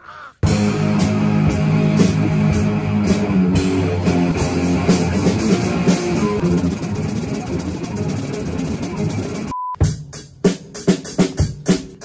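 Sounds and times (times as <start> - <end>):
electric guitar: 0.4 - 9.5
drum kit: 0.4 - 12.0.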